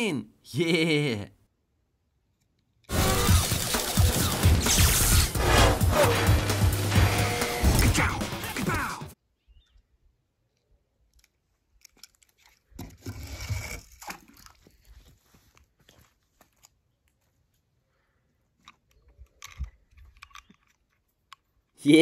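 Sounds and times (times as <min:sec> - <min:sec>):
toy pieces clicking: 0:19.0 - 0:21.6.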